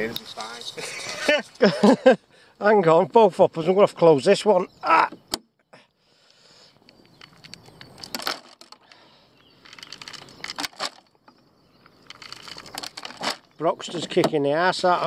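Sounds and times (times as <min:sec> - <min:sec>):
bait rattling into plastic hopper: 0:07.1 - 0:08.9, 0:09.6 - 0:11.1, 0:12.0 - 0:13.4.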